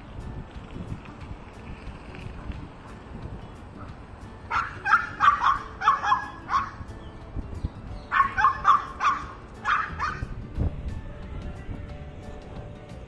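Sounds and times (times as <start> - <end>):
small dog barking high-pitched: 4.5 - 6.9, 8.1 - 10.3.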